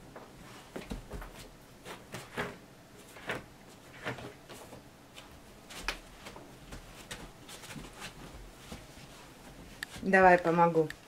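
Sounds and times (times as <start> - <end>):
puppy rustling fabric bedding: 0.3 - 10.6.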